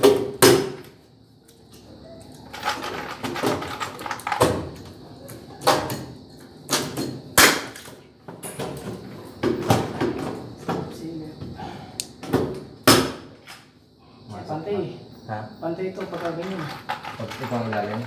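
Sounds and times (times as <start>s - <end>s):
boards and metal framing knocking: 0.0s - 0.9s, 2.7s - 4.9s, 5.5s - 11.0s, 12.2s - 13.3s.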